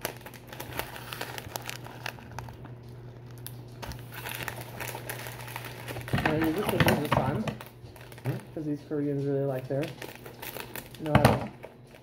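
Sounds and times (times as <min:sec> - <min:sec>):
plastic wrapper crinkling: 0:00.0 - 0:12.0.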